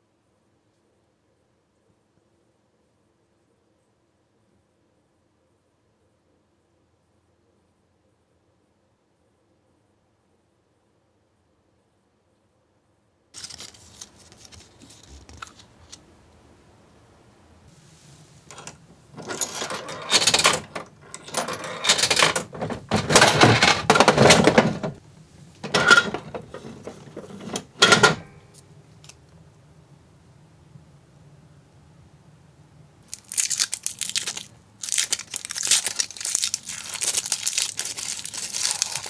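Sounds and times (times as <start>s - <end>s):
coins dropping into machine: 18.5s - 25.0s, 25.6s - 26.4s, 27.4s - 28.4s.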